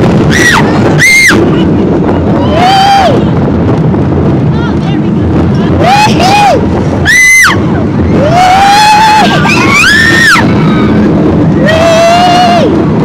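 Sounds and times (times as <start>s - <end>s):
roller coaster train moving: 0.0s - 13.0s
rush of wind: 0.0s - 13.0s
riders screaming: 2.3s - 3.3s, 5.8s - 12.8s.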